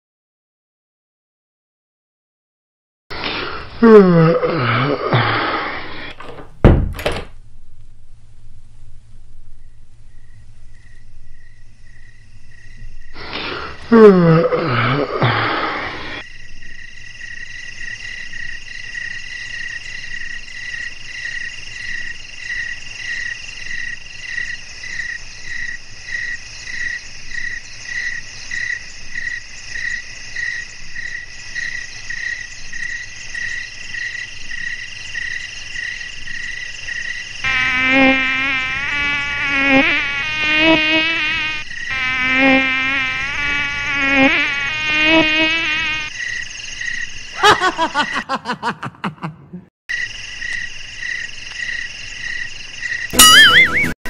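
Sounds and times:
crickets chirping: 0:05.0 - 0:49.0, 0:49.9 - 0:53.6
mosquito whine: 0:10.2 - 0:16.6, 0:37.1 - 0:47.0.

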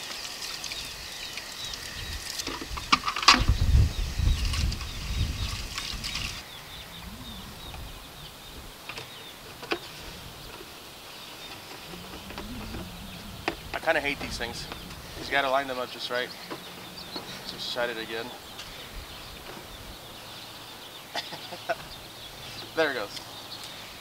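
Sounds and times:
tap water running into container: 0:00.0 - 0:03.5
low rumble: 0:03.4 - 0:20.3.

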